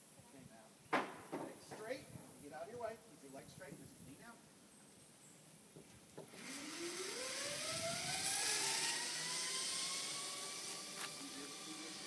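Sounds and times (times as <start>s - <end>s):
zip line trolley whine: 6.2s - 12.0s.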